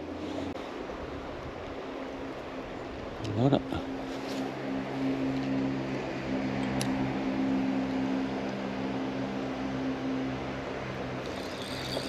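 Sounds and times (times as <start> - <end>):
insects chirping: 11.3 - 12.0.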